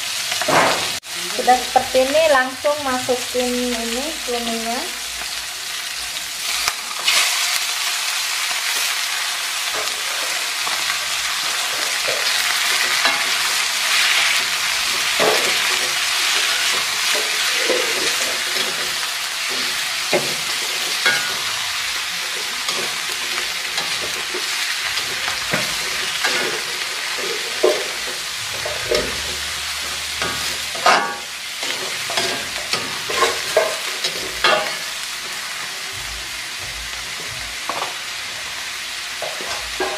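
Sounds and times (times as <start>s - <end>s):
food sizzling in hot oil: 0.0s - 39.9s
spatula scraping and knocking wok: 8.6s - 35.8s, 36.5s - 39.9s.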